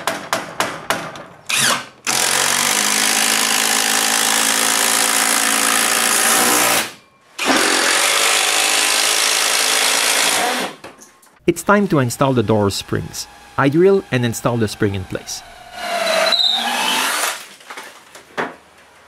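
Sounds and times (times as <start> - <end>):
cordless drill driving screws: 15.5 - 17.4.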